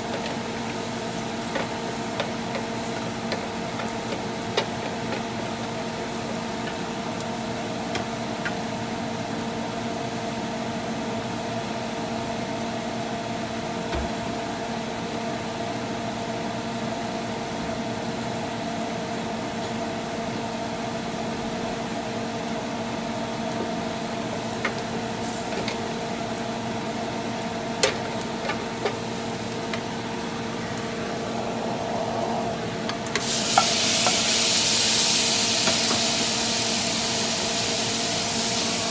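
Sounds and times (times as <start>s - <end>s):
shrimp hissing sizzle in pan: 0.0s - 8.2s, 24.0s - 26.5s, 33.2s - 38.9s
steady hum: 20.4s - 38.9s
garlic frying in butter: 33.2s - 38.9s.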